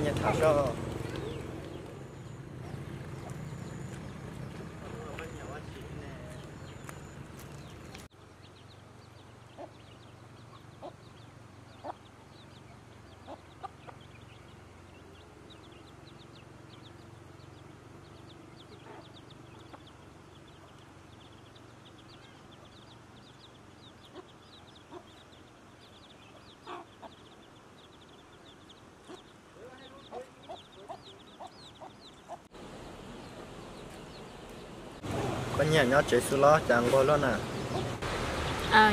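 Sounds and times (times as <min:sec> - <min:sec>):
hen clucking: 0:00.0 - 0:04.0, 0:10.5 - 0:12.1, 0:13.1 - 0:14.1, 0:24.0 - 0:25.2, 0:26.3 - 0:27.4, 0:29.0 - 0:32.5, 0:37.6 - 0:38.0
chicks peeping: 0:00.0 - 0:17.1, 0:18.1 - 0:38.8.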